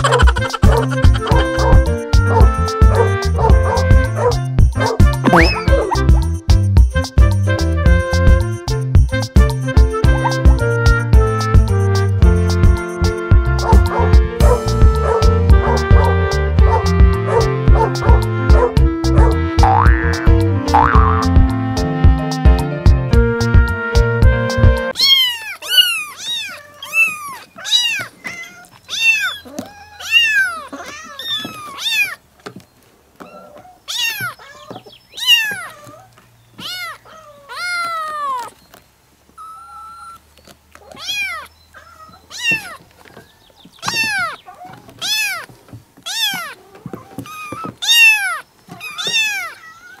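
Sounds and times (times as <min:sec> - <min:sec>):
cats meowing: 0:00.0 - 0:03.9, 0:05.2 - 0:06.2, 0:24.9 - 0:32.3, 0:33.2 - 0:38.6, 0:39.4 - 0:50.0.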